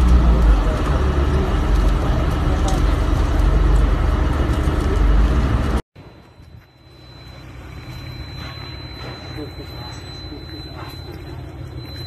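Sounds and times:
loud low outdoor rumble: 0.0s - 12.0s
outdoor ambience: 0.0s - 12.0s
faint steady high tone: 6.0s - 12.0s.

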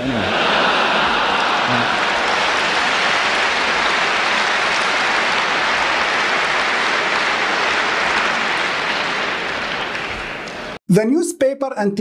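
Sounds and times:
audience laughing: 0.0s - 10.4s
audience applauding: 0.0s - 10.8s.

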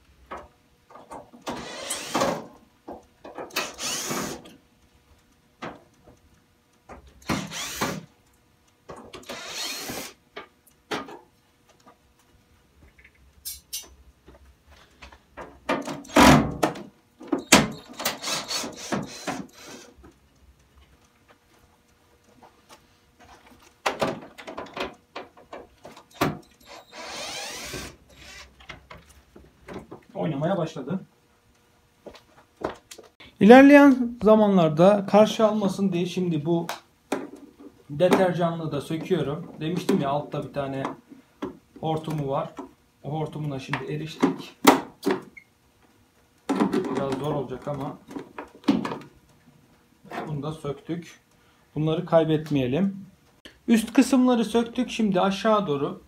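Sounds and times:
cordless drill running: 1.5s - 2.4s, 3.6s - 4.4s, 7.2s - 8.0s, 9.2s - 10.2s, 18.0s - 19.9s, 26.6s - 28.5s.

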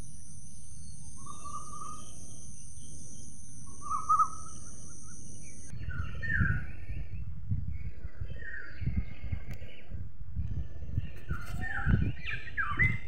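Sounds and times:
high insect drone: 0.0s - 5.8s
birds chirping: 0.0s - 13.0s
uneven low rumble: 4.6s - 13.0s.

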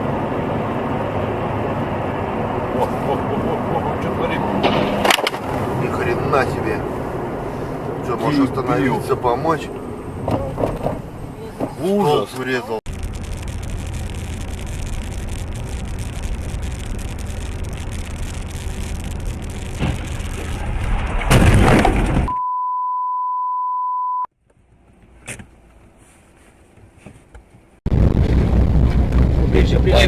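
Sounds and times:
car road and engine rumble: 0.0s - 22.3s, 24.3s - 30.0s
car crash impact: 4.6s - 5.7s, 19.7s - 22.3s
steady high beep: 22.3s - 24.3s.

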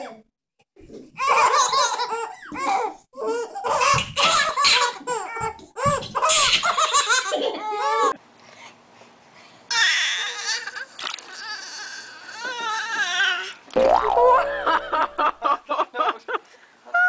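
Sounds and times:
babies laughing: 1.2s - 8.2s.

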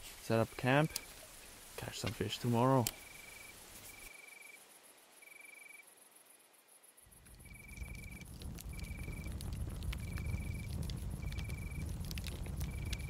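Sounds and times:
insect trilling faintly: 0.3s - 13.0s
low rumble: 7.2s - 13.0s.

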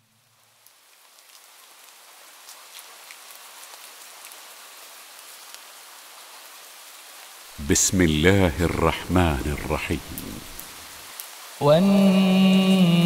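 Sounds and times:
steady rain falling: 0.0s - 13.0s
raindrop ticks: 7.7s - 12.1s.

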